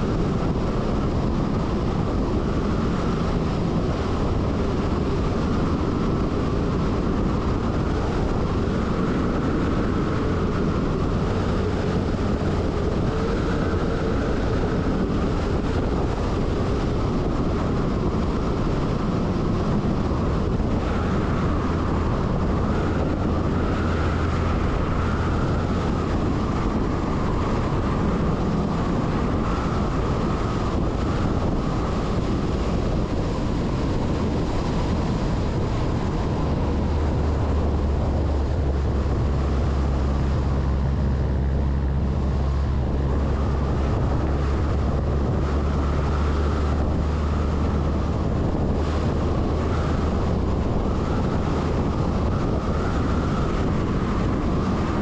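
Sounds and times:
diesel engine drone: 0.0 - 55.0
wind on the microphone: 0.0 - 55.0.

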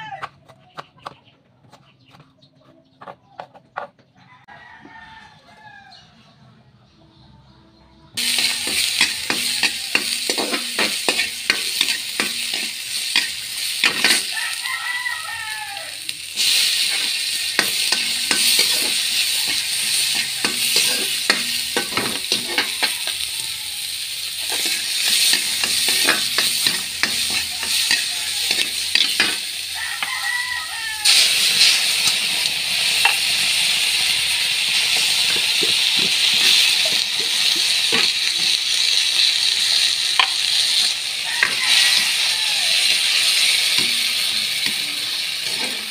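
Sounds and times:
metal spatula scraping a pan: 8.2 - 14.6, 16.3 - 23.5, 24.3 - 30.4, 42.9 - 45.9
vegetables sizzling in a pan: 8.2 - 45.9.

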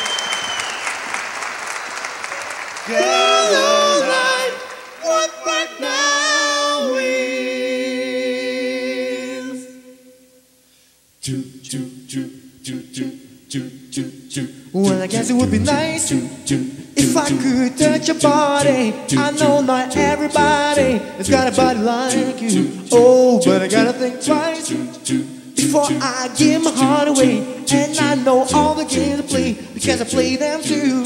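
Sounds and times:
male vocal group chord: 2.9 - 9.9, 11.2 - 31.0
vocal percussion: 11.2 - 31.0
low sung bass: 15.2 - 16.4, 20.0 - 21.9.

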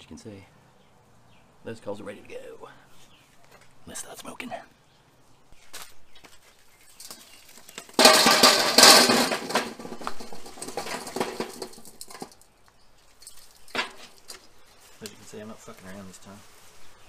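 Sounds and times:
small clinks of coals: 6.8 - 8.2, 9.8 - 15.3
coals clattering onto metal grate: 6.9 - 15.2.

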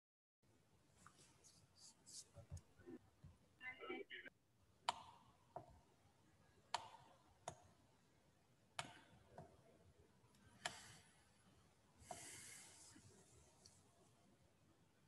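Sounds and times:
computer mouse clicks: 8.8 - 9.5, 10.3 - 11.0.

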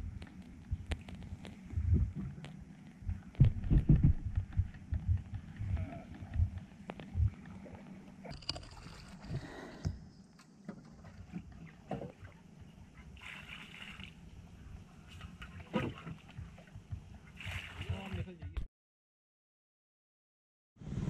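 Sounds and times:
water splashing over side: 10.8 - 14.3, 15.0 - 18.5
water lapping: 10.8 - 18.4.

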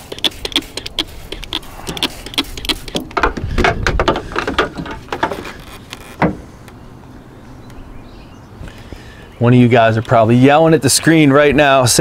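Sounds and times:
sharp click: 0.0 - 3.2
spray bottle squirting: 0.0 - 3.3.

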